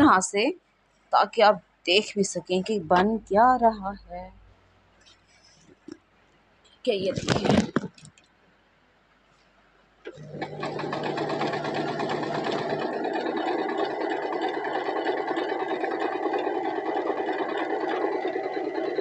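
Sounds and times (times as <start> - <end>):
electric sewing machine stitching: 10.1 - 19.0.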